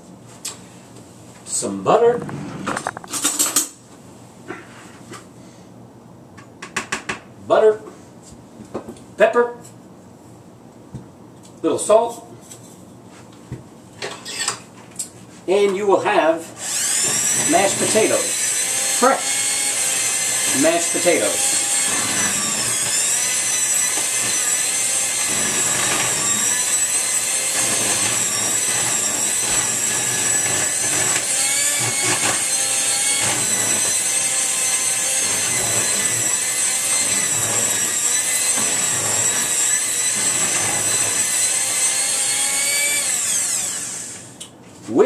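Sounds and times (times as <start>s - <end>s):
electric mixer whining: 16.6s - 44.3s.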